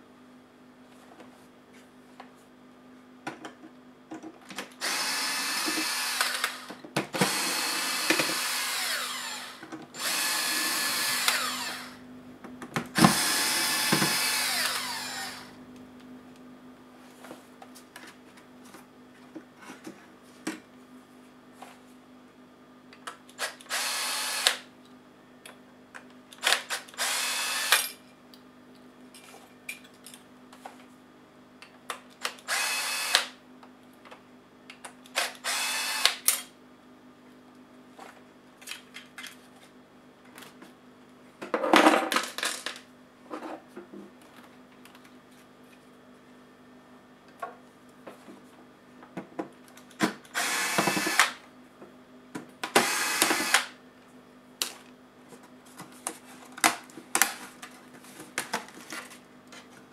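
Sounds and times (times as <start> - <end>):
cordless drill running: 4.8 - 12.0, 13.0 - 15.5, 23.4 - 24.7, 26.5 - 27.8, 32.4 - 33.4, 35.2 - 36.2, 50.3 - 51.4, 52.7 - 53.8.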